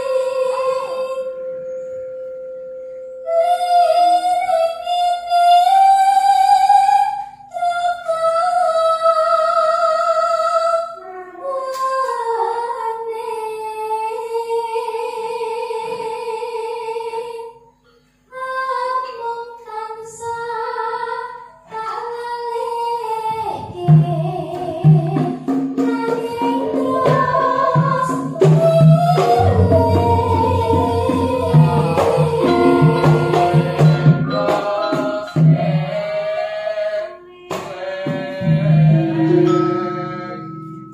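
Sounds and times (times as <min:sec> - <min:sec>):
drum beat: 0:23.9 - 0:35.6
gamelan instruments: 0:24.8 - 0:36.4, 0:38.3 - 0:40.9.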